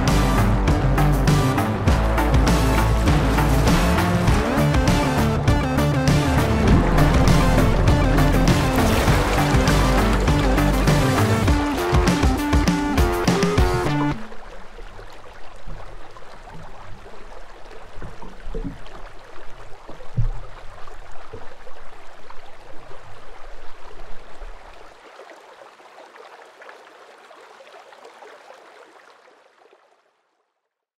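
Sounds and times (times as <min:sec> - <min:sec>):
river water rushing and gurgling: 0:00.0 - 0:30.3
low rumble: 0:01.7 - 0:11.7
low thuds: 0:01.8 - 0:14.2.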